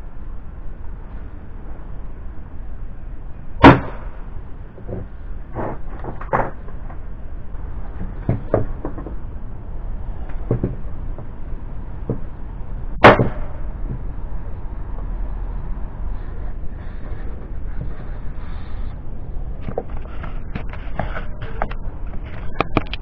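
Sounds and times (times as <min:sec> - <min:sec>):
nail gun firing into wood: 0:03.6 - 0:04.0, 0:13.0 - 0:13.5.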